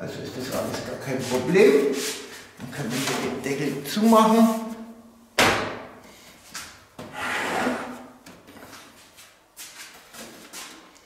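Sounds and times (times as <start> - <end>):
panel scraping into place: 7.1 - 8.1.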